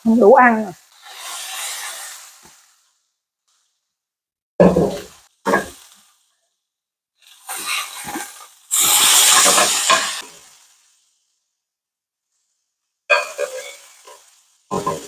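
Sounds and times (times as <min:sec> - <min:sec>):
steak sizzling in frying pan: 0:00.2 - 0:03.0, 0:04.9 - 0:06.3, 0:07.2 - 0:11.2, 0:13.1 - 0:15.0.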